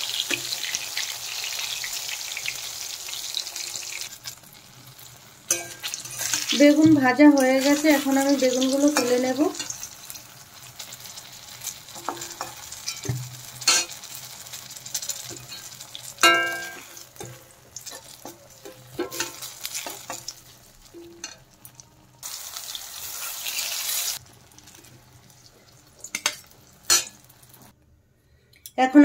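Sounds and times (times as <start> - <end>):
slices sizzling in hot oil: 0.0 - 27.7
spatula scraping metal pan: 5.5 - 7.0.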